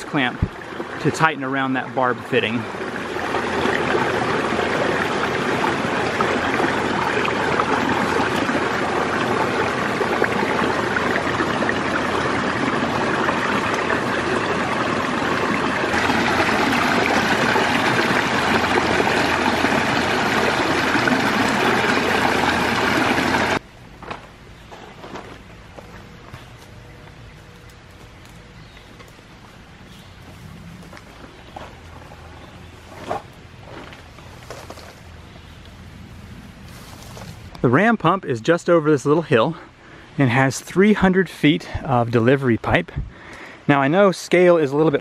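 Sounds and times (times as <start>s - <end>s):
water rushing over rocks: 0.0s - 23.6s.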